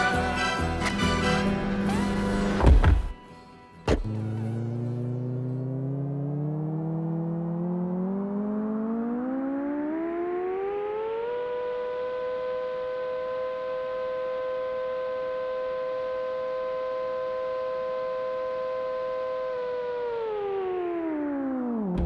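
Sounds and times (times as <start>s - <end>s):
synthesizer tone gliding upward: 4.1s - 17.3s.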